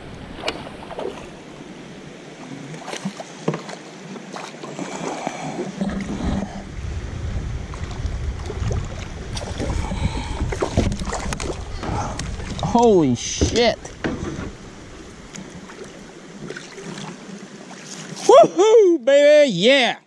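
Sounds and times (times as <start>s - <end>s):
water lapping against kayak: 0.0s - 18.6s
wind rumble on microphone: 5.2s - 16.5s
knocks on the hull: 13.4s - 14.6s.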